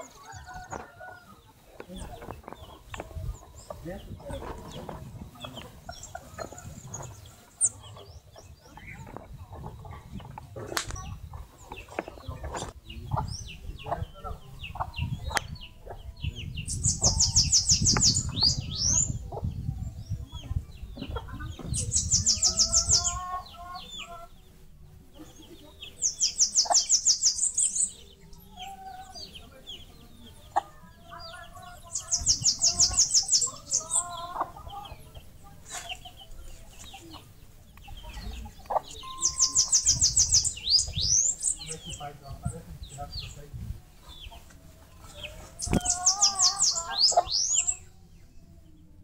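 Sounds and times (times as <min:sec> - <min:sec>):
bird chirps and clucking calls: 0:00.0 - 0:49.0
bird high-pitched trill: 0:39.0 - 0:41.6.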